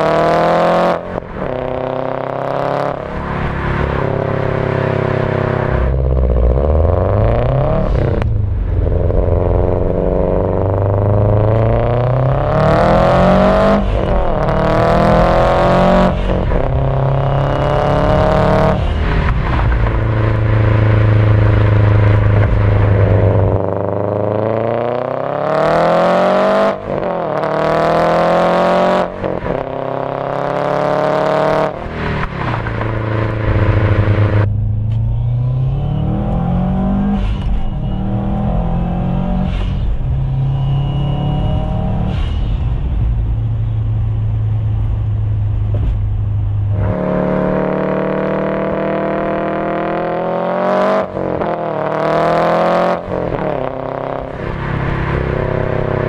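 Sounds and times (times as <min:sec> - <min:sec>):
turbocharged car engine revving: 0:00.0 - 0:56.0.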